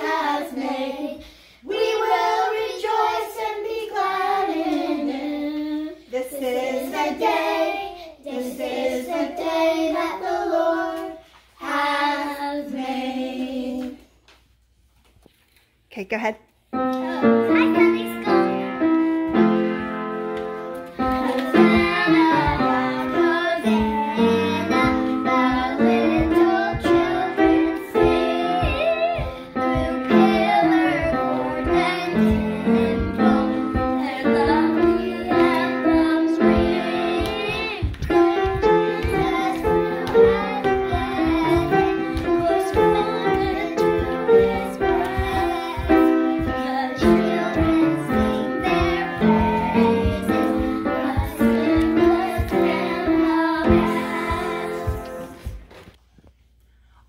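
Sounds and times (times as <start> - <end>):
children singing: 0.0 - 14.0, 21.0 - 55.4
piano accompaniment: 16.8 - 55.7
steady beat: 21.6 - 35.7.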